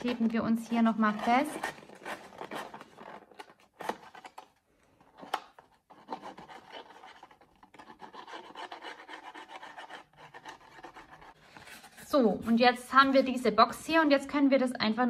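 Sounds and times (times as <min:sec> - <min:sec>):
fingers rubbing paper: 0:00.0 - 0:03.0, 0:05.9 - 0:12.6.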